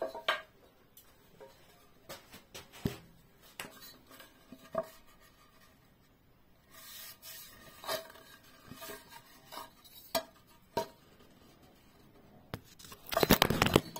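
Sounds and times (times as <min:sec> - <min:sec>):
soft rub of wood: 0:01.4 - 0:12.8.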